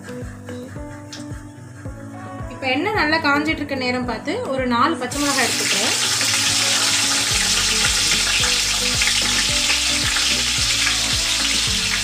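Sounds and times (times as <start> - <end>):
chillies sizzling in hot oil: 5.1 - 12.0.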